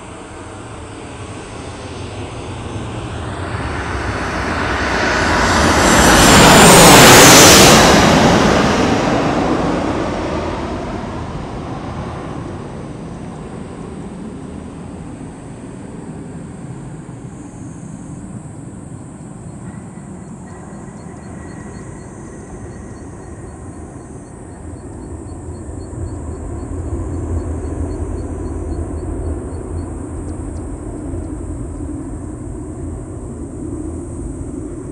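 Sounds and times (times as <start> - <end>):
jet engines rumbling: 0.0 - 34.9.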